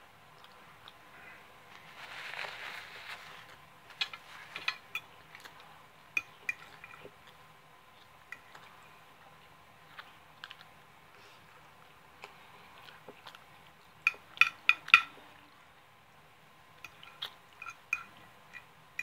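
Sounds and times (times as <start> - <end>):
soft rustle: 1.1 - 4.8.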